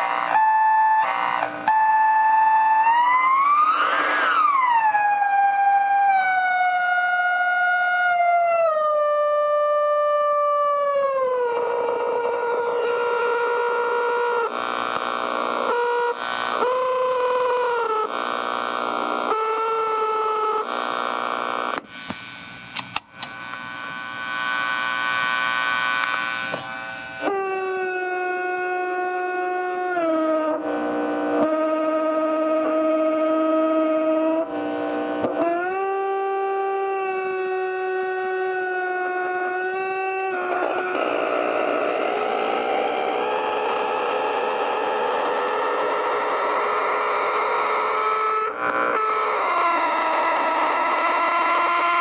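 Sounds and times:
crackling clicks: 0:00.0 - 0:05.1, 0:11.2 - 0:19.7, 0:20.6 - 0:27.4, 0:34.4 - 0:35.8
high electronic whine: 0:00.0 - 0:52.0.

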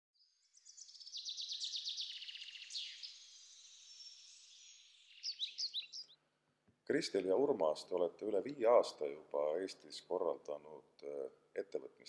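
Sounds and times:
sharp bird chirps: 0:00.2 - 0:06.2
songbird trilling: 0:00.6 - 0:06.2
songbird warbling: 0:00.6 - 0:06.2.

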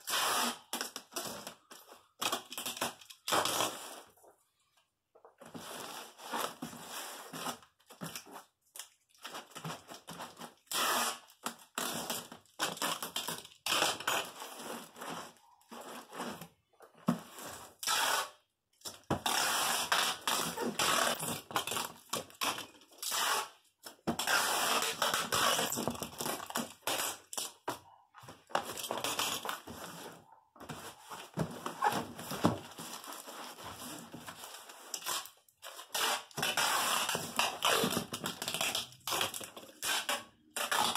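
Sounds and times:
tape rubbed onto cardboard box: 0:00.0 - 0:00.7, 0:10.7 - 0:11.9, 0:17.8 - 0:18.5, 0:19.2 - 0:21.3, 0:23.0 - 0:23.6, 0:24.2 - 0:25.8
packing tape pulled off roll: 0:10.6 - 0:14.4, 0:19.2 - 0:23.6, 0:24.2 - 0:27.6.

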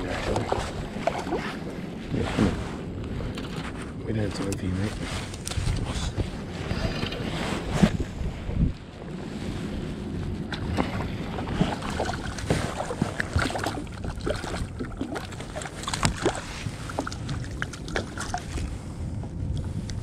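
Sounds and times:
water lapping against kayak hull: 0:00.0 - 0:20.0
wind rumbling on microphone: 0:00.0 - 0:20.0
small clicks and splashes: 0:10.5 - 0:18.8.

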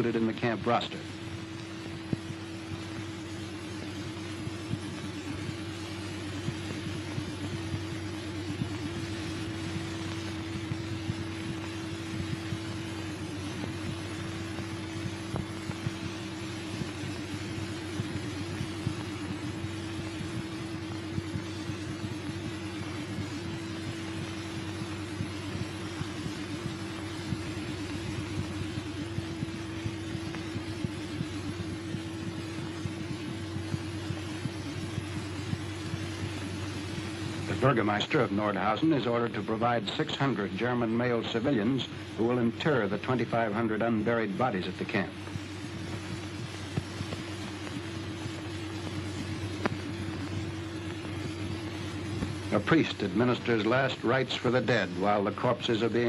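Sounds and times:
crackles and pops: 0:00.0 - 0:56.0
film soundtrack hiss and hum: 0:00.0 - 0:56.0.

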